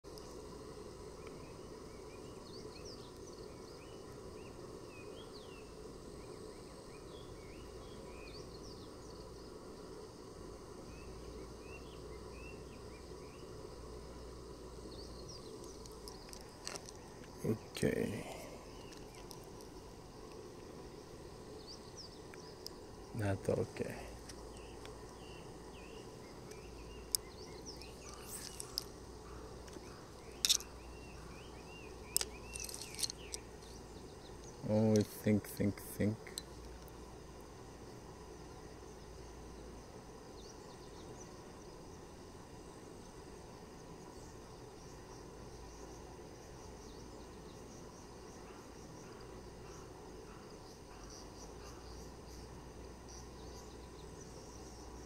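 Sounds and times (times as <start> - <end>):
small chirping calls: 0.1 - 9.4, 10.8 - 37.6, 43.9 - 55.0
fishing reel clicks: 30.4 - 30.7, 32.2 - 33.4
handling rustles: 32.2 - 33.4.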